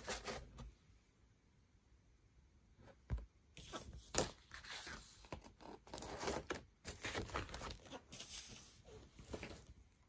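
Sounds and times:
packaging rustling and scraping: 3.7s - 9.8s.

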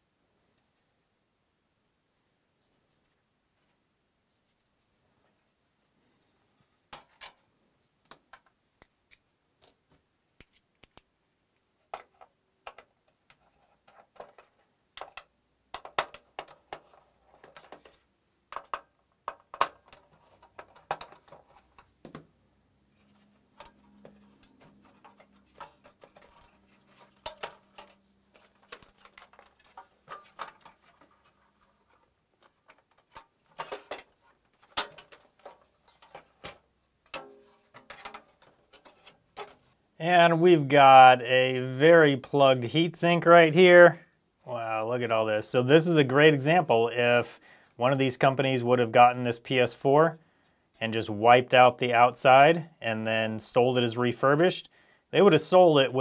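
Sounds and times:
clicks and clinks of metal and plastic: 23.6s - 39.6s.

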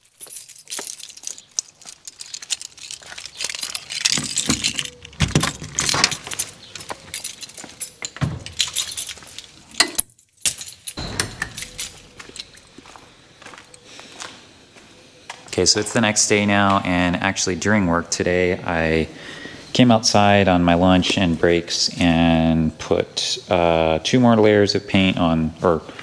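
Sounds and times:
keys jangling: 0.0s - 13.9s.

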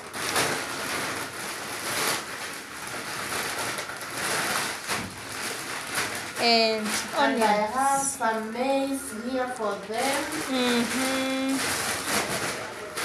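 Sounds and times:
bag rustling: 0.1s - 8.2s.

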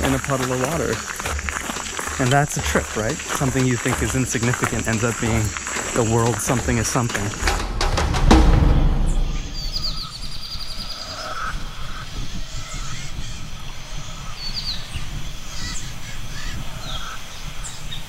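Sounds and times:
steady low rumble: 7.3s - 10.0s.

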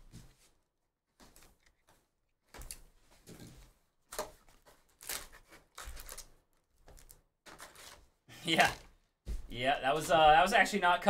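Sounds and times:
wrapper and cardboard crinkling: 4.2s - 8.8s.

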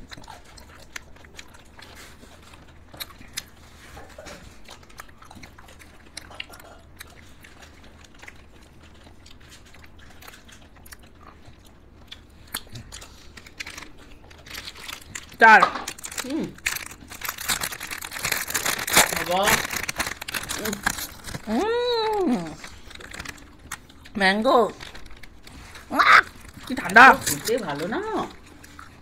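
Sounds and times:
wet mouth clicks and bites: 0.0s - 24.2s.

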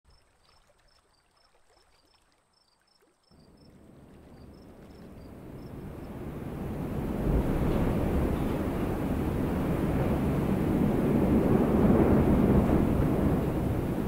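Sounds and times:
wind rushing: 4.6s - 14.0s.

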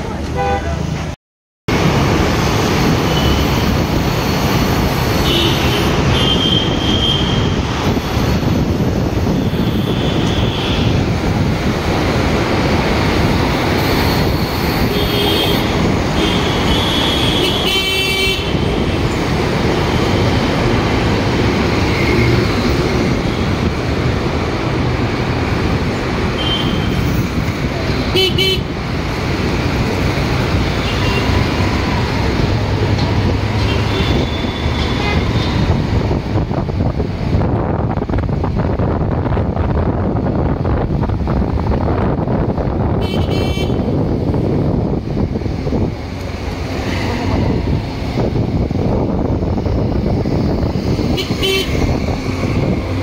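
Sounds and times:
road noise: 0.0s - 53.0s
vehicle horn toots: 5.2s - 7.5s, 14.8s - 18.6s, 26.4s - 27.0s, 28.1s - 28.7s, 33.6s - 35.6s, 43.0s - 43.9s, 51.2s - 51.8s.

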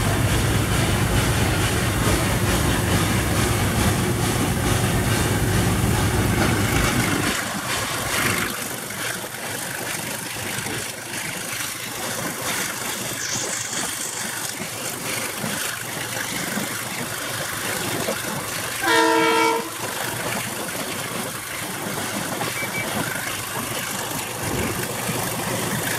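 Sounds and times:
train running rumble: 0.0s - 25.9s
train signal whistle: 18.8s - 19.8s.

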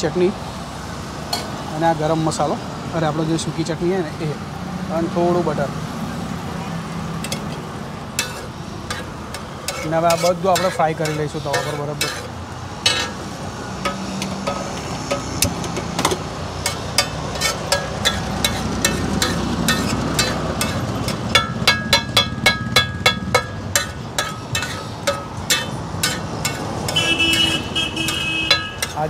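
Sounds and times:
metal spatula scraping on griddle: 7.2s - 29.0s
ringing metal strikes: 13.8s - 15.6s, 16.6s - 29.0s.

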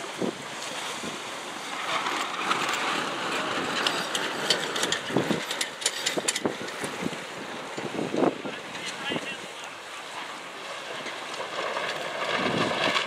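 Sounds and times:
wind buffeting microphone: 0.0s - 9.4s, 10.4s - 13.0s
choppy water: 0.0s - 13.0s
sharp clicks and crackles: 2.0s - 7.2s, 10.9s - 13.0s.

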